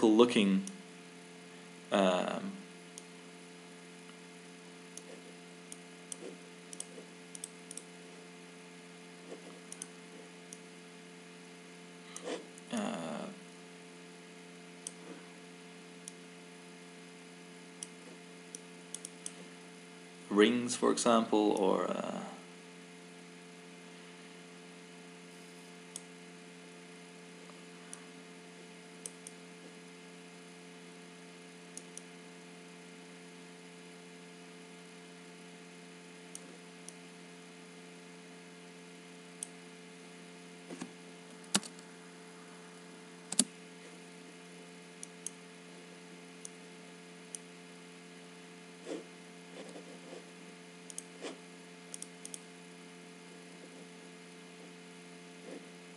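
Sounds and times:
steady electrical hum: 0:00.0 - 0:55.9
computer mouse clicks: 0:04.9 - 0:07.9, 0:09.3 - 0:10.6, 0:14.8 - 0:15.2, 0:17.8 - 0:19.4, 0:31.7 - 0:32.1, 0:40.7 - 0:41.8, 0:43.3 - 0:43.5, 0:45.0 - 0:45.4, 0:50.8 - 0:51.3, 0:51.9 - 0:52.4.

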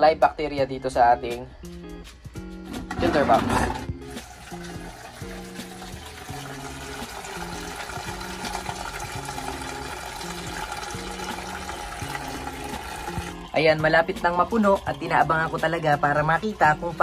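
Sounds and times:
soft background music: 0:00.0 - 0:17.0
water pouring from pipe: 0:04.1 - 0:17.0.

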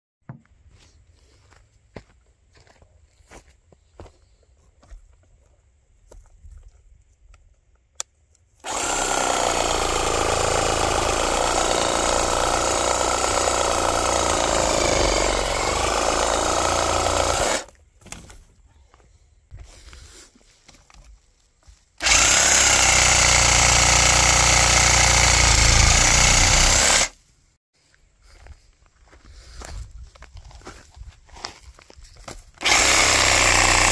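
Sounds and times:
reciprocating saw cutting stalk: 0:08.6 - 0:17.7, 0:22.0 - 0:27.2, 0:32.6 - 0:33.9.

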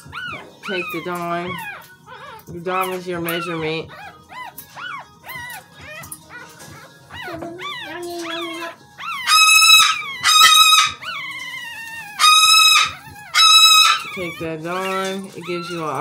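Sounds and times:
puppy whimpering and squealing: 0:00.0 - 0:16.0.

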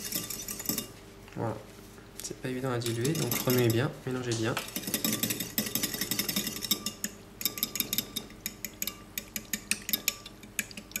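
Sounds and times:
metal spoon clinking in ceramic bowl: 0:02.8 - 0:03.9, 0:04.6 - 0:11.0.

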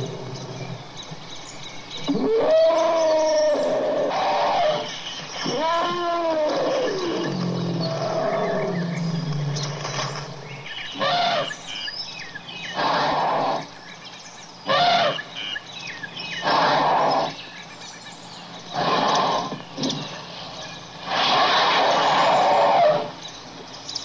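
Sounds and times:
elephant rumble: 0:00.0 - 0:11.7, 0:18.6 - 0:23.2
elephant calls: 0:01.9 - 0:11.9, 0:14.6 - 0:15.3, 0:16.4 - 0:17.4, 0:21.0 - 0:23.2.

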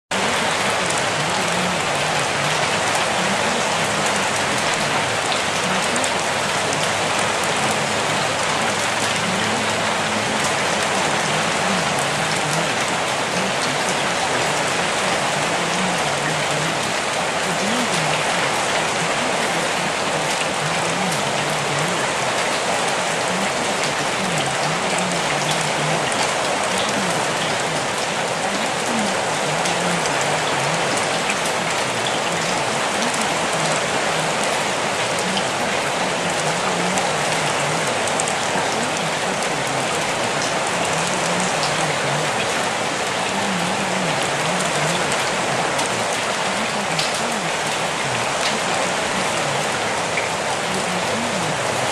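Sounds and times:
faint mumbling voice: 0:00.1 - 0:51.9
steady rain hiss: 0:00.1 - 0:51.9.

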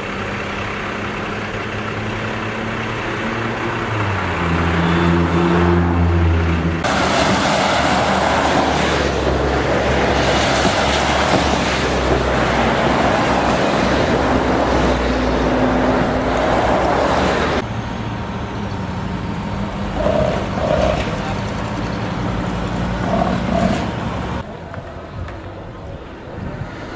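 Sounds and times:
engine idling: 0:00.0 - 0:03.6
passing vehicles rushing: 0:00.0 - 0:26.9.

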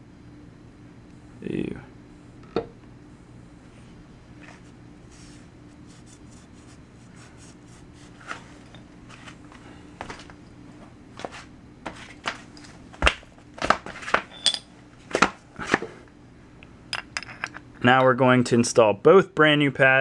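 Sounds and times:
metal tools clinking and clattering: 0:14.3 - 0:14.7.

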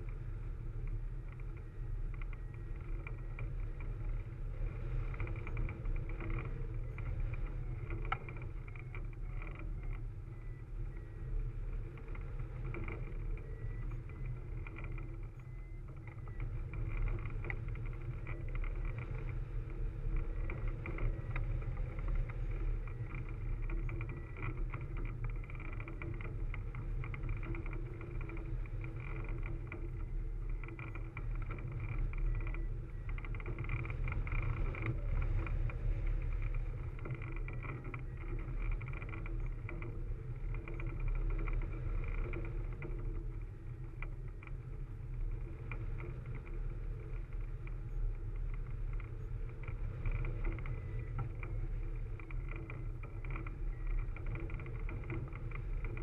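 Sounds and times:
wind buffeting rumble: 0:00.0 - 0:56.0
faint whistling tones: 0:06.4 - 0:19.0, 0:50.2 - 0:56.0.

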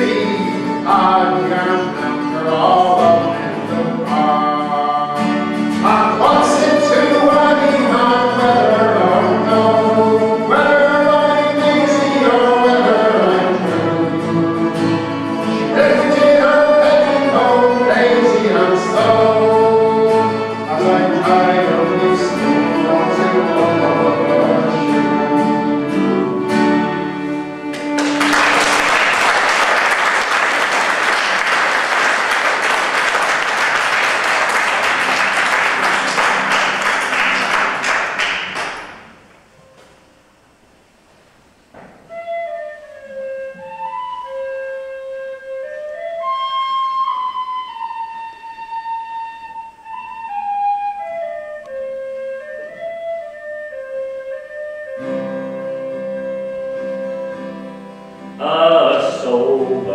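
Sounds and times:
folk ensemble playing lively tune: 0:00.0 - 0:39.1, 0:42.1 - 0:59.9
audience applause: 0:27.7 - 0:39.1.

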